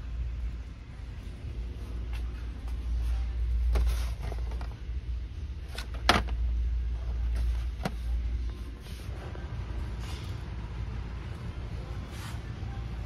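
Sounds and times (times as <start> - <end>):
steady low rumble: 0.0 - 13.0.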